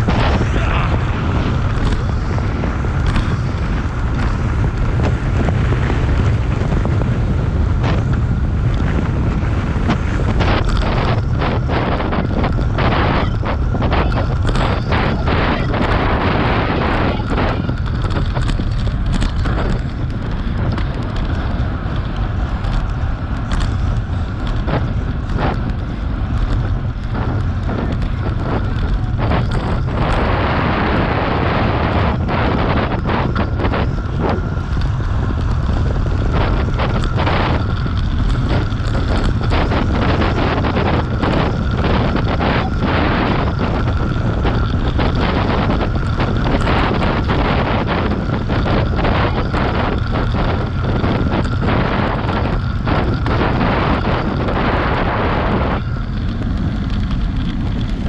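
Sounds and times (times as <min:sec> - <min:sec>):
bike knocks and rattles: 0:00.0 - 0:58.0
tyres rumbling on rough asphalt: 0:00.0 - 0:58.0
wind buffeting microphone: 0:00.0 - 0:58.0.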